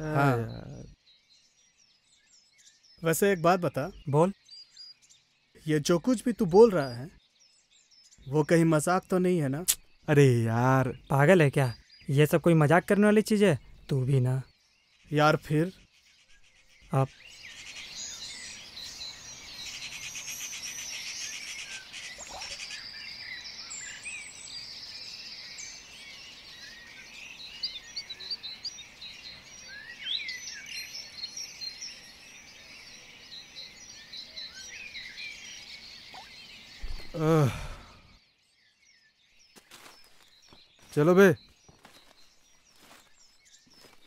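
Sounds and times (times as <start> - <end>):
man's voice: 0.0 - 0.8, 40.9 - 41.4
small birds chirping: 0.0 - 44.0.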